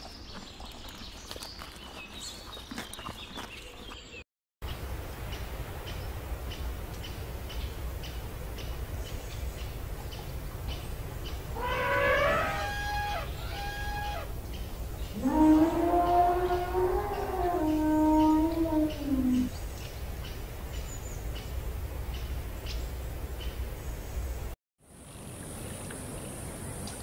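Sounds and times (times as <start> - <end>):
elephant calls: 11.5 - 14.4, 15.1 - 19.6.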